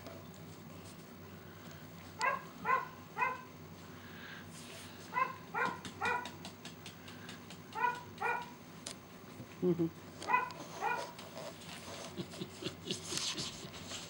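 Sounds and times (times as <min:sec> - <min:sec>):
puppy yipping: 0:05.2 - 0:06.3, 0:07.8 - 0:08.5, 0:10.3 - 0:11.1.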